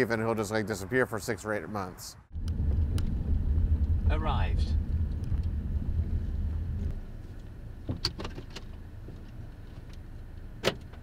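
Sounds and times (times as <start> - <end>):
car rumble inside cabin: 2.4 - 9.6.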